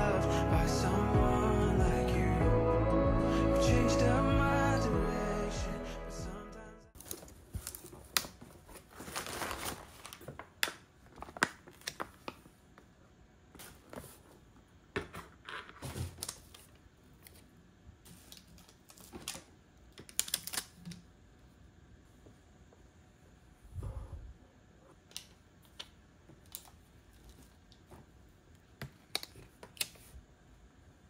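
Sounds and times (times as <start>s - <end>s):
packing material rustling: 7.0s - 12.5s.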